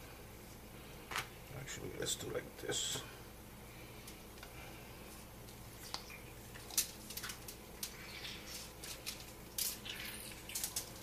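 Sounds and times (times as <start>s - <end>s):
crinkly rustles of handling: 5.0s - 11.0s.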